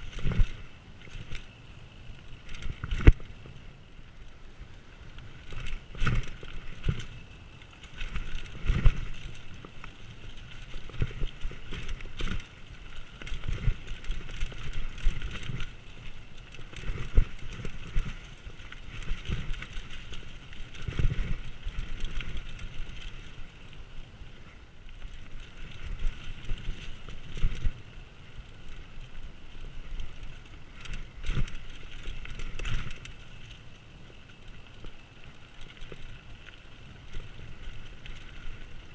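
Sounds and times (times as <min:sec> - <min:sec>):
tyres on dirt and rock: 0:00.0 - 0:38.9
bike knocking and clattering: 0:05.4 - 0:23.3.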